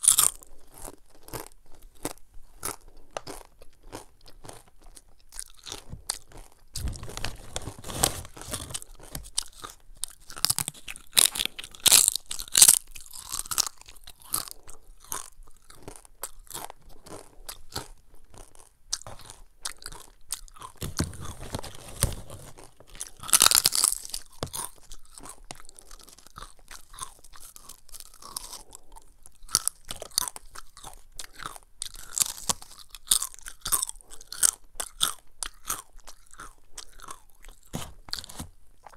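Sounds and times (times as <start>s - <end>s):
crunching and chewing chips: 0.0s - 38.9s.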